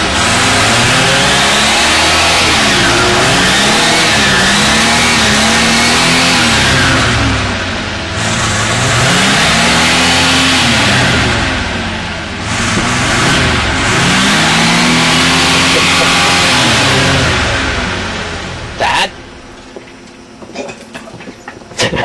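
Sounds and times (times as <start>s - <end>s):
car engine revving: 0.0s - 20.4s.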